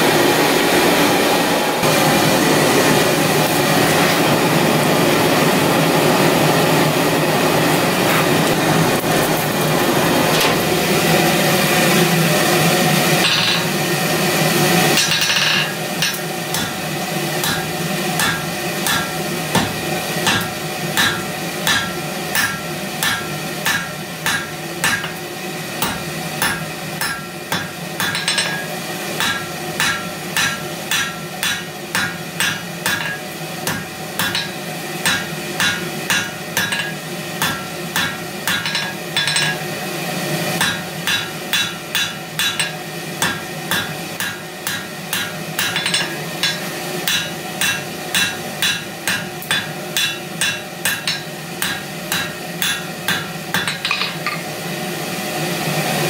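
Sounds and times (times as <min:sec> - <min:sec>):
hammer striking hot steel: 0:13.0 - 0:13.9, 0:14.8 - 0:39.8, 0:40.6 - 0:54.6.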